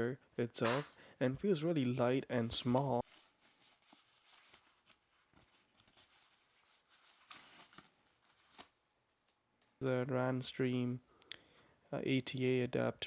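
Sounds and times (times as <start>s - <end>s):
foam packaging rustling: 2.5s - 8.9s.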